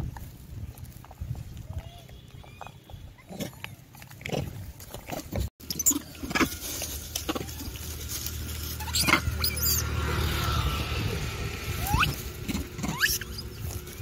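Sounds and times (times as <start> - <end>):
monkeys squealing: 5.6 - 6.7, 8.7 - 10.0, 11.0 - 13.8.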